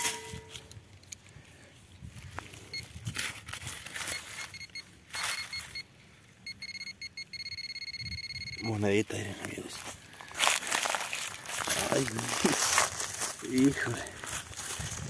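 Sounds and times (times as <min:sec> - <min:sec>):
metal detector beeping: 0:00.0 - 0:00.8, 0:02.6 - 0:03.1, 0:03.9 - 0:09.2
soil being dug: 0:00.0 - 0:01.3.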